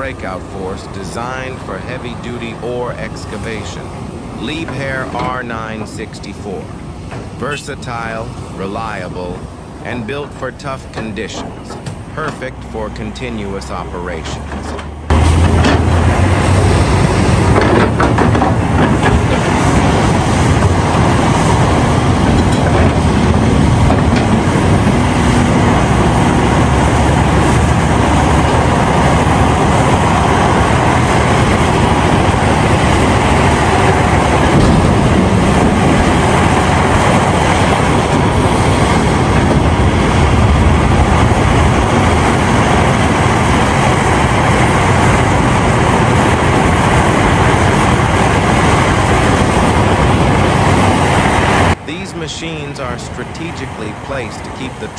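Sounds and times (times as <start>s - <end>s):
excavator engine and hydraulics: 0.0s - 54.9s.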